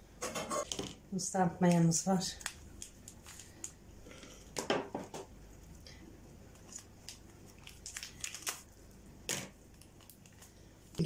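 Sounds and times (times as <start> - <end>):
packet crinkling and rustling: 2.3 - 3.8, 6.5 - 9.0, 9.6 - 10.6.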